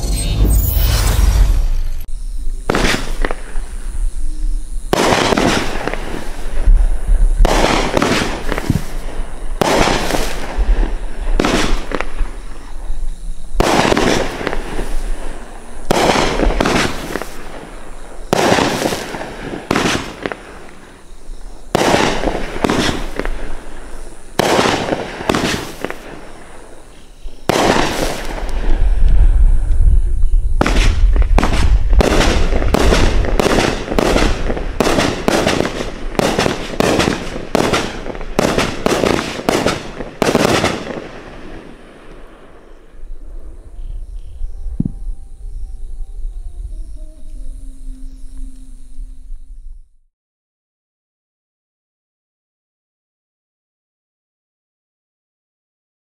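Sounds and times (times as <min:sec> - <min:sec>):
firework bangs: 0:00.0 - 0:04.2, 0:04.8 - 0:12.8, 0:13.5 - 0:29.7, 0:30.5 - 0:43.0
rapid volley of firework shots: 0:02.6 - 0:03.6, 0:04.9 - 0:12.6, 0:13.6 - 0:20.8, 0:21.7 - 0:26.7, 0:27.4 - 0:28.8, 0:30.6 - 0:42.4.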